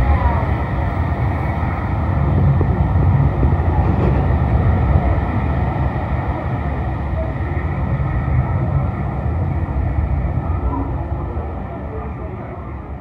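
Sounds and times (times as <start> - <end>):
train wheels rumbling on rails: 0.0 - 13.0.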